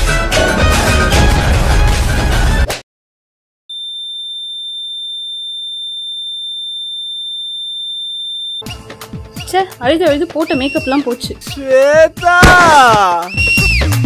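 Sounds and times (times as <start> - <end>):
high-pitched ear-ringing tone: 3.7 - 8.7.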